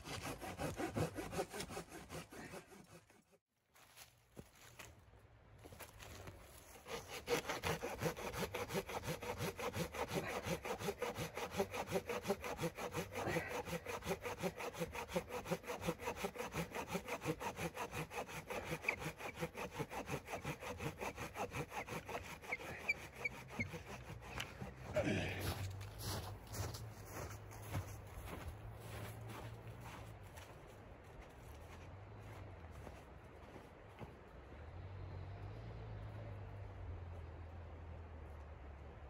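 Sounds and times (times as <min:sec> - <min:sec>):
hand saw cutting log: 0:00.0 - 0:03.4, 0:06.6 - 0:25.8.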